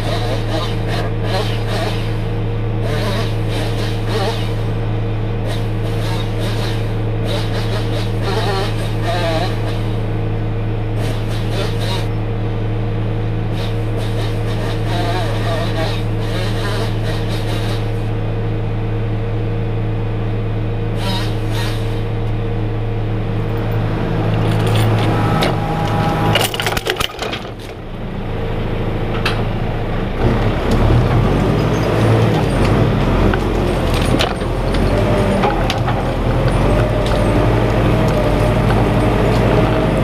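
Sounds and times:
diesel engine running under load: 0.0 - 40.0
logs cracking and knocking: 31.9 - 40.0.

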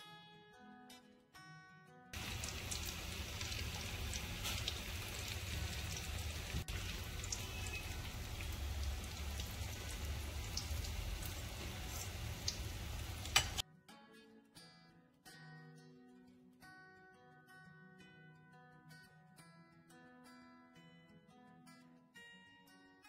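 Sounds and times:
oil sizzling and popping: 2.2 - 13.6.

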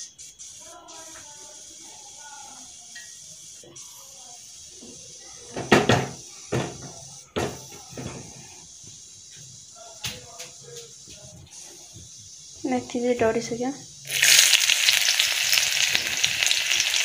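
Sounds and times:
seeds sizzling in hot oil: 11.6 - 17.0.

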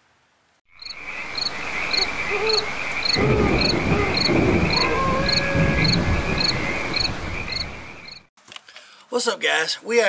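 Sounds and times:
crickets chirping: 0.7 - 8.3
insect trill: 0.7 - 8.3.

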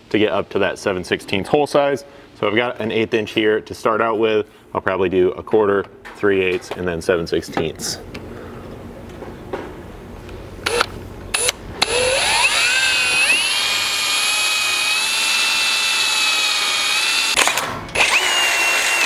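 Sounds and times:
power drill boring metal: 11.4 - 19.0.

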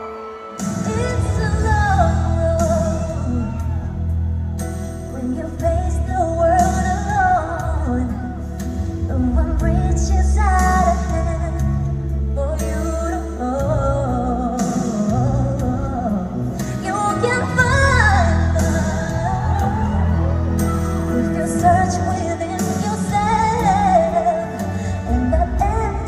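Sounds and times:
woman singing into a microphone: 0.0 - 4.4, 5.0 - 26.0
amplified backing music: 0.0 - 26.0
deep bass line: 1.1 - 12.5.

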